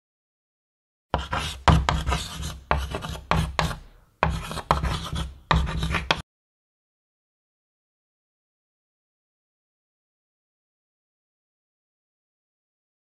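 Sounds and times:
chalk scratching on blackboard: 1.2 - 6.2.

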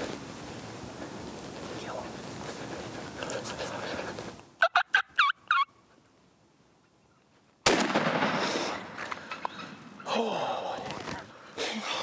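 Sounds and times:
turkey gobbling: 4.6 - 5.8
shotgun blast with echo: 7.6 - 8.8.

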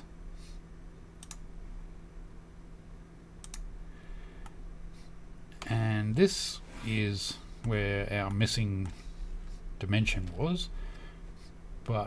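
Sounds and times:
faint low hum: 0.0 - 12.0
computer mouse clicks: 1.2 - 1.4, 3.4 - 3.7.

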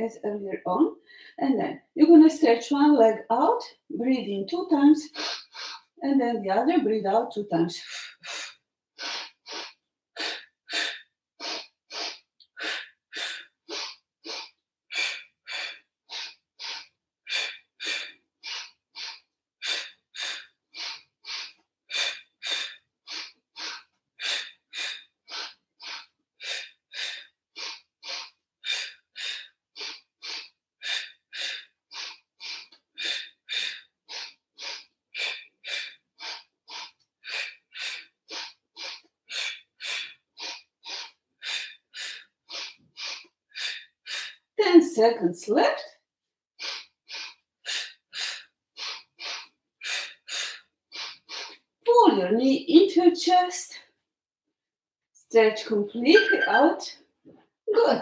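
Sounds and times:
woman breathing forcefully: 5.1 - 6.0, 7.8 - 44.6, 46.6 - 51.6.

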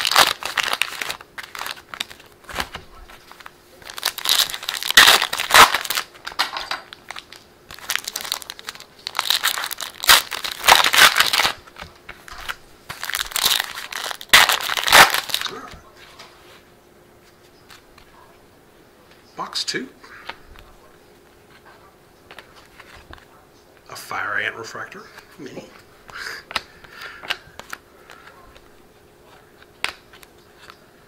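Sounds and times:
foil wrappers crinkling and tearing: 0.0 - 15.6.

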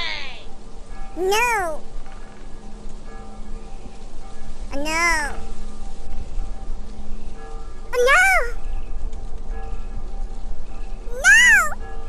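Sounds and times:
cat meowing: 11.1 - 11.8.

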